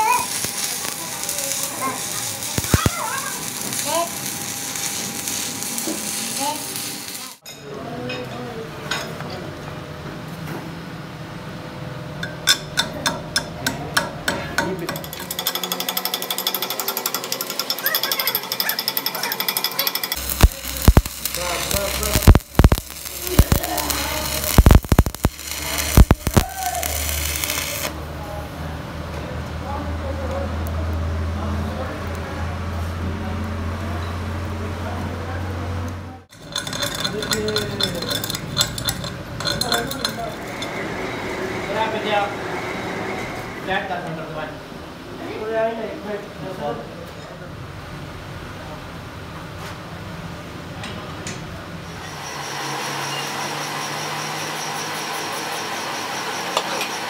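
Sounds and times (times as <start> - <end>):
welding arc hiss: 0.0 - 7.4, 20.1 - 28.0
welding machine low hum: 0.0 - 7.4, 15.0 - 28.2, 36.3 - 41.8
chipping hammer clinking on metal: 36.3 - 40.7.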